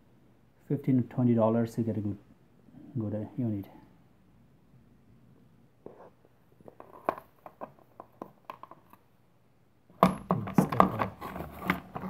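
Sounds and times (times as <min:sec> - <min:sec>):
plastic clatter and knocks: 0:10.0 - 0:12.0.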